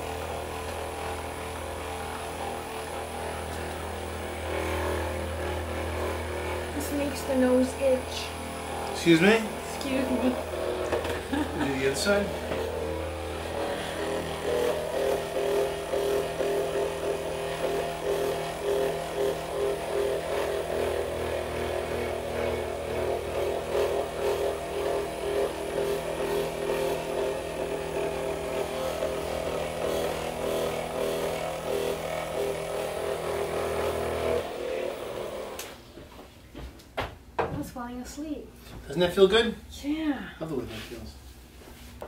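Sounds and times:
massage gun motor pulsing: 0:00.0 - 0:36.0.

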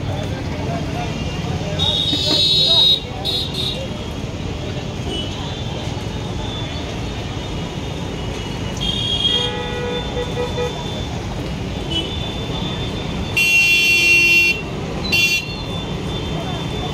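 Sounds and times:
street traffic noise: 0:00.0 - 0:16.9
vehicle horns honking: 0:01.8 - 0:03.9, 0:08.5 - 0:11.1, 0:11.8 - 0:16.9.

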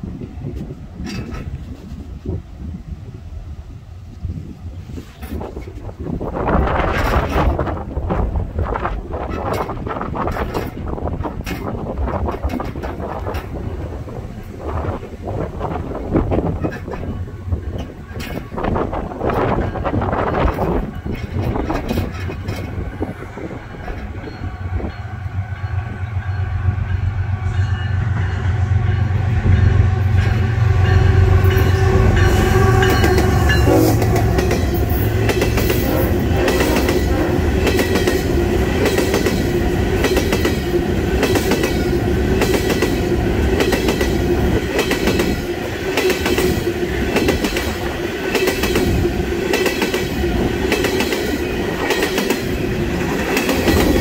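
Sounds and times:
train wheels clacking over rail joints: 0:01.0 - 0:02.0, 0:06.6 - 0:15.0, 0:15.6 - 0:24.4, 0:31.4 - 0:54.0
locomotive engine rumble: 0:05.2 - 0:54.0.

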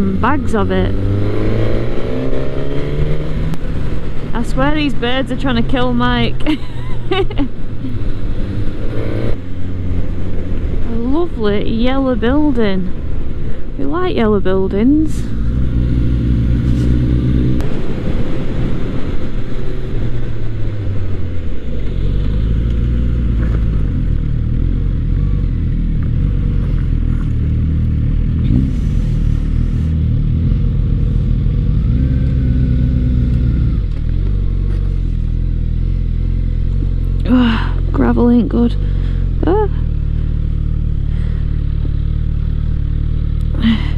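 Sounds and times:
motorcycle engine running: 0:20.5 - 0:43.9.

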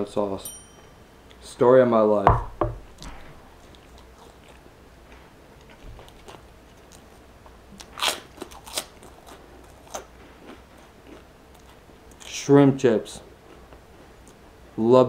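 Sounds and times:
faint chewing: 0:03.6 - 0:12.4
crunch of cracker bitten: 0:07.8 - 0:12.4.

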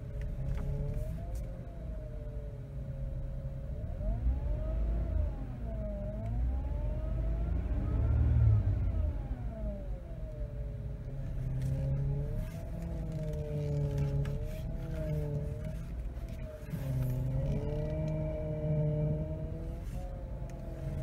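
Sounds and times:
power steering pump whining: 0:11.1 - 0:21.0.

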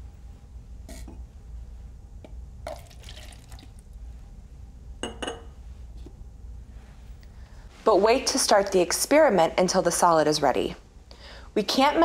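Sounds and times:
water pouring into cup: 0:02.7 - 0:03.9.

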